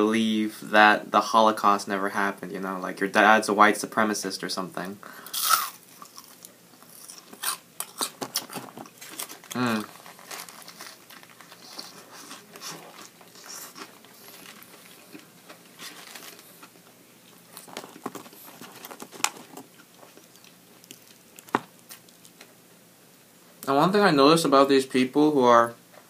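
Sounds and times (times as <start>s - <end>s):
person chewing food: 5.2s - 22.5s
foil wrapper crinkling: 5.3s - 16.8s, 17.5s - 22.4s.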